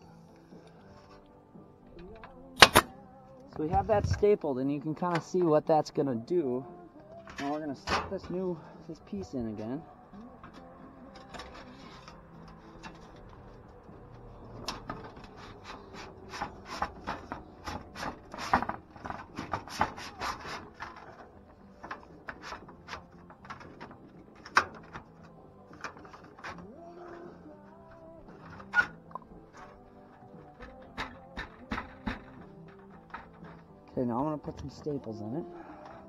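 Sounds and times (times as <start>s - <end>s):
metal scraping: 7.2s - 36.0s
sharp clicks and knocks: 14.5s - 26.7s, 27.9s - 33.7s.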